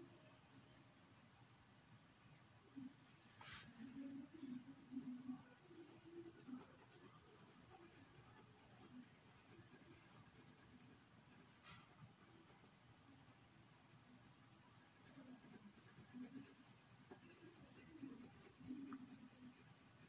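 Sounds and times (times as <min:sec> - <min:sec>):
pencil scratching on paper: 0:03.4 - 0:12.7, 0:14.8 - 0:20.0.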